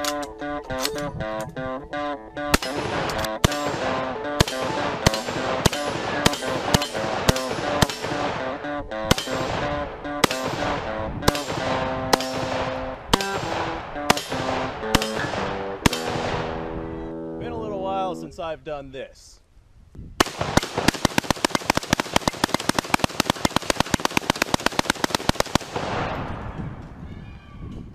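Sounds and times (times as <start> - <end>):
guitar music: 0.0 - 18.4
rifle shots: 2.5 - 16.7, 20.2 - 26.6.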